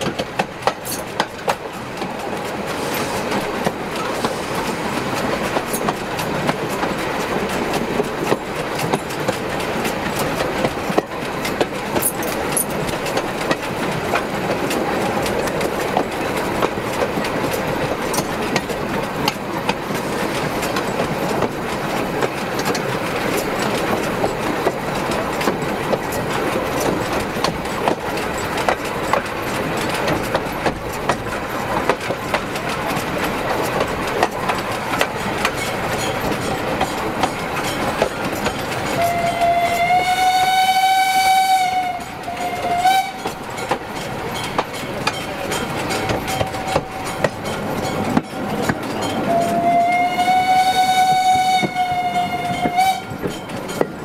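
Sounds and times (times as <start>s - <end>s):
train wheels clickety-clack: 0.0s - 54.0s.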